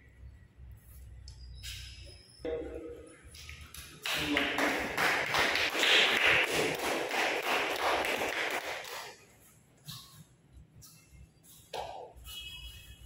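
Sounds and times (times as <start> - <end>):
small group applauding: 3.4 - 9.2.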